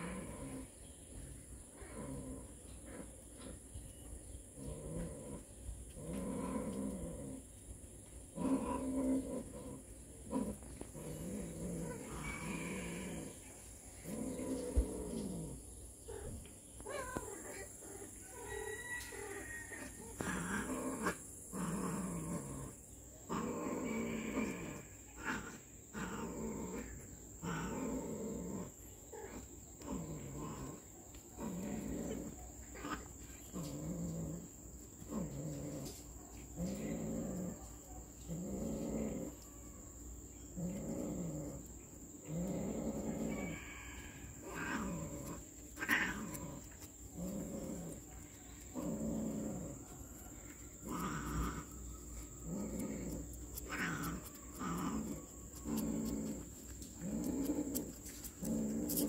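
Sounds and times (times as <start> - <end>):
cats yowling: 16.8 - 17.7, 50.5 - 56.4.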